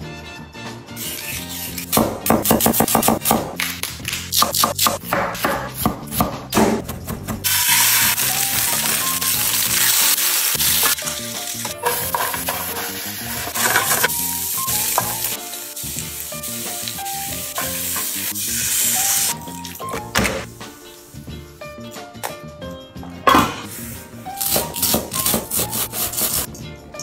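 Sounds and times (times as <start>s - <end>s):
vegetables sizzling in a pan: 7.4s - 19.4s.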